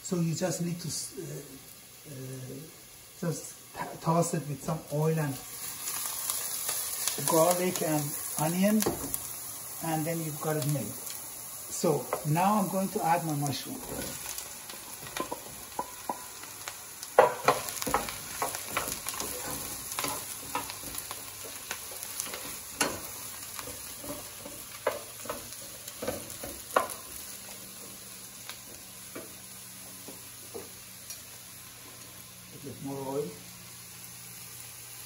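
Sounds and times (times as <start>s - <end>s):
mushrooms sizzling in hot oil: 0.0s - 35.0s
wooden spoon knocking and scraping pan: 8.8s - 9.2s, 13.8s - 16.5s, 17.2s - 29.4s.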